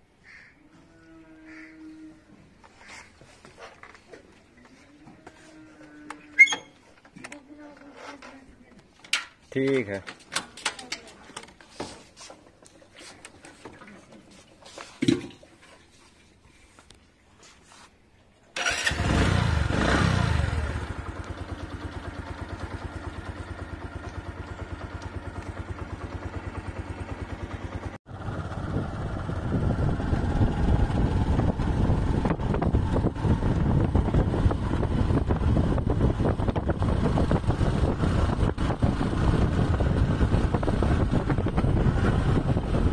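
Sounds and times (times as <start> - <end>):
motorcycle engine revving and idling: 18.6 - 42.9
motorcycle riding past: 18.6 - 42.9.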